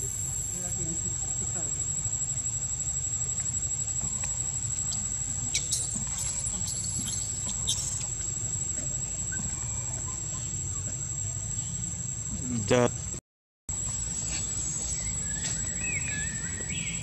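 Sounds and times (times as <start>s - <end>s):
high insect buzz: 0.0s - 17.0s
baby monkey squeaks: 4.9s - 8.2s.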